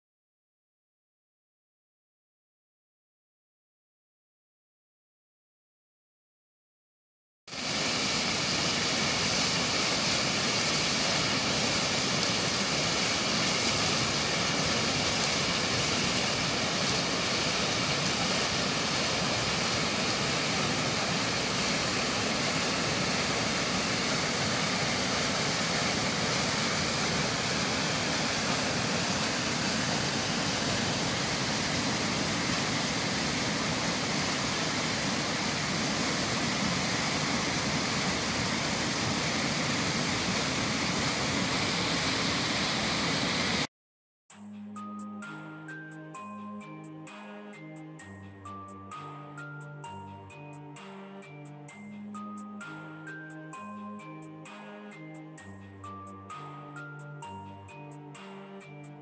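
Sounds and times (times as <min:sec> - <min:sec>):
stream rushing over rocky cascades: 0:07.5 - 0:43.7.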